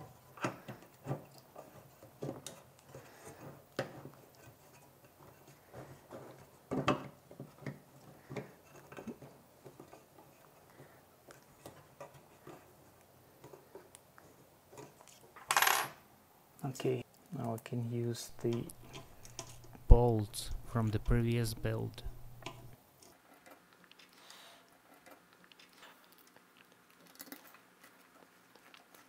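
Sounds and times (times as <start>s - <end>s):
clicks and knocks of handled parts: 18.4s - 19.8s.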